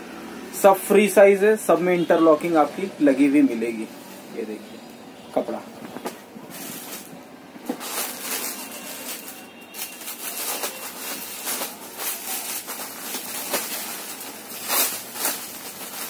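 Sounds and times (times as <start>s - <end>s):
cloth rustling swishes: 5.8s - 16.0s.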